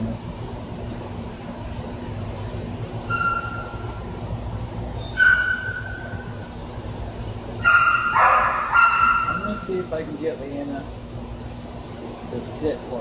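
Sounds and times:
steady low hum: 0:00.0 - 0:13.0
dog whining: 0:03.1 - 0:04.0, 0:05.0 - 0:06.4.

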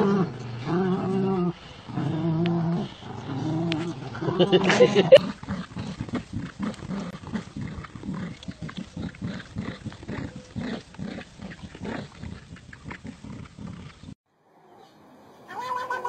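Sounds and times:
dogs growling in play: 0:00.0 - 0:14.2.

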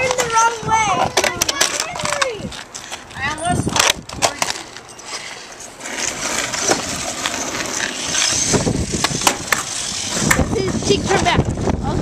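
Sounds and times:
tyres rolling on concrete: 0:00.0 - 0:12.0
toy truck motor whirring: 0:06.6 - 0:11.4.

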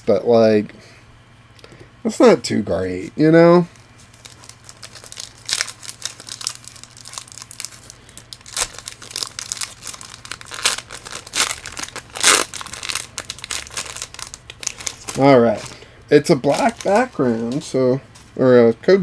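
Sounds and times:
plastic wrapper crinkling and tearing: 0:04.1 - 0:17.7.

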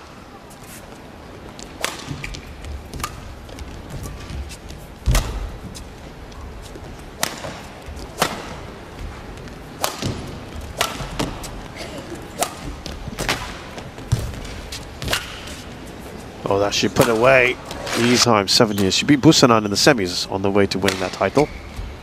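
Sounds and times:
rackets striking shuttlecock: 0:01.8 - 0:03.4, 0:07.2 - 0:08.7, 0:09.8 - 0:11.5, 0:12.3 - 0:13.7, 0:14.3 - 0:15.5, 0:20.8 - 0:21.5.

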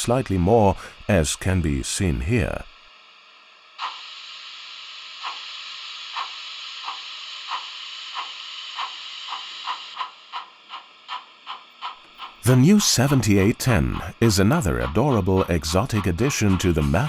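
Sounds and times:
steam hiss: 0:00.0 - 0:17.0
steam exhaust chuffs: 0:03.8 - 0:17.0.

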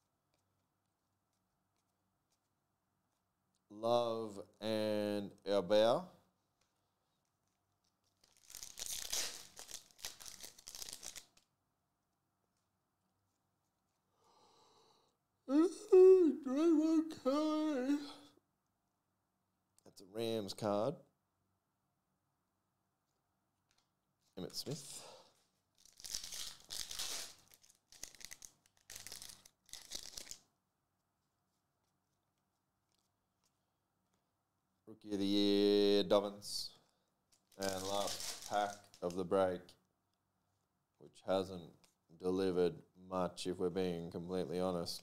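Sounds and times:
foil wrapper tearing and crinkling: 0:08.0 - 0:11.5, 0:25.7 - 0:30.4, 0:37.4 - 0:39.2.

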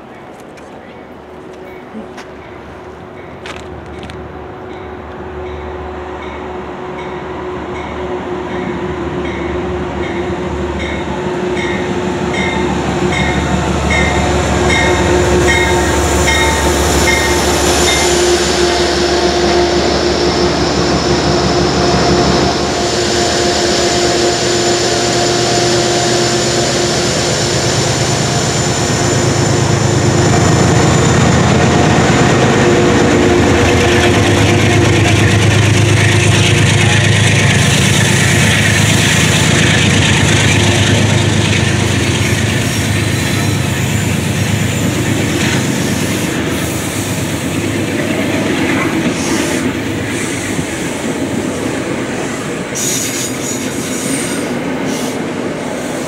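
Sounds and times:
diesel locomotive engine: 0:00.0 - 0:56.0
train wheels: 0:00.1 - 0:56.0
locomotive bell ringing: 0:04.7 - 0:19.8.

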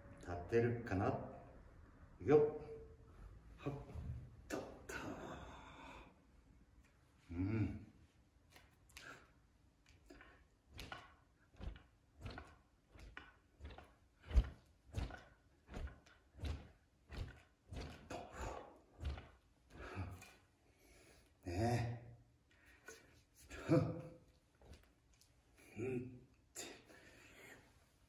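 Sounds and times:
wooden sword swishing: 0:10.1 - 0:20.5.

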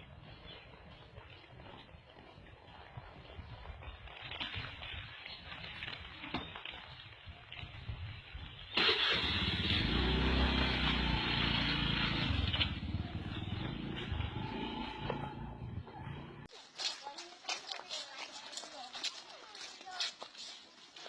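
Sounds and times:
scooter engine starting and running: 0:08.7 - 0:16.5.

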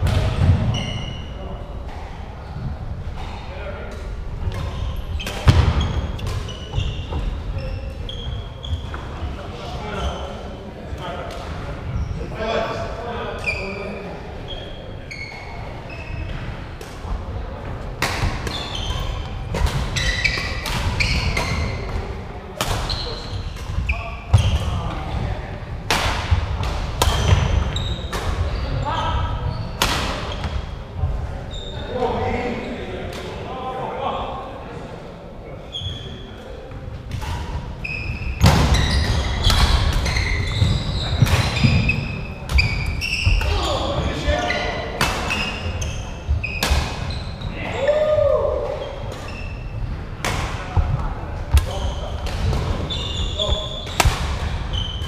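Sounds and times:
shoes squeaking: 0:00.5 - 0:01.4, 0:04.5 - 0:09.2, 0:14.5 - 0:16.5, 0:18.2 - 0:21.9, 0:22.8 - 0:24.6, 0:27.1 - 0:30.6, 0:37.3 - 0:49.9, 0:51.5 - 0:55.0
racket hitting shuttlecock: 0:53.8 - 0:54.6.

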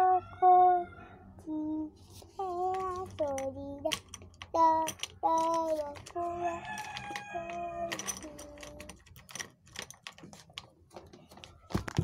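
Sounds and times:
girl humming: 0:00.0 - 0:02.8.

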